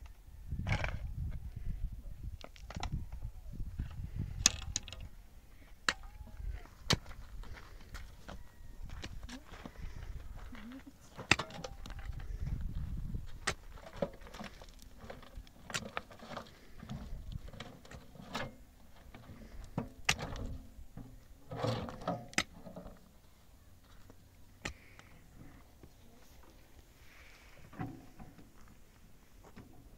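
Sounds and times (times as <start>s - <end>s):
soil scraping: 5.7s - 29.9s
metal wheelbarrow rattling over stones: 11.1s - 12.5s, 13.4s - 23.2s.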